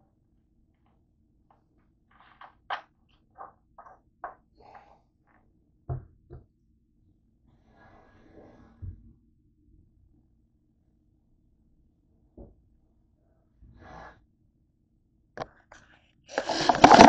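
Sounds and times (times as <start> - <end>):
plastic bottle set down thud: 16.4 - 17.0.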